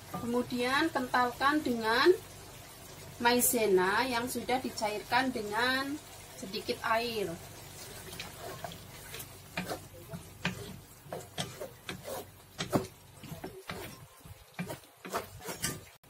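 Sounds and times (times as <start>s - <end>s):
wooden spatula scraping metal wok: 7.8s - 16.0s.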